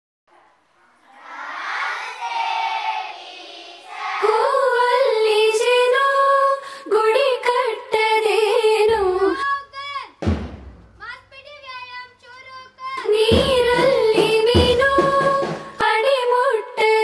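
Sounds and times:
children singing in chorus: 0.3 - 5.6.

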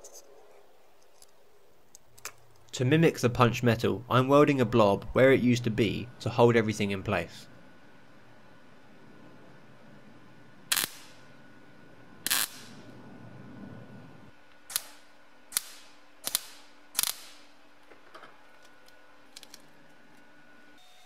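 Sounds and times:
welder bursts: 10.7 - 11.3, 12.2 - 12.8, 14.6 - 17.6.

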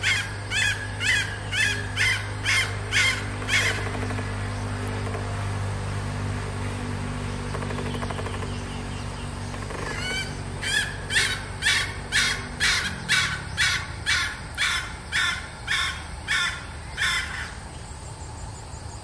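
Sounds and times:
hen cackling: 0.0 - 4.0, 9.7 - 17.6.

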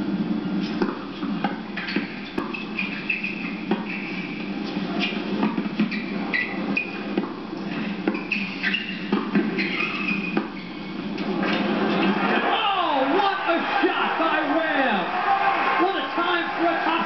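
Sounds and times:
shoes squeaking on court: 0.6 - 12.1
racket hitting tennis ball: 0.8 - 4.0, 9.1 - 9.6.

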